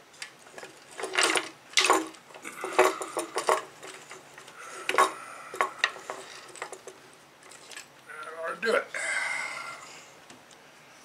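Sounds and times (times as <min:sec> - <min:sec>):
chain links and wooden blocks rattling: 0:00.4 - 0:08.0.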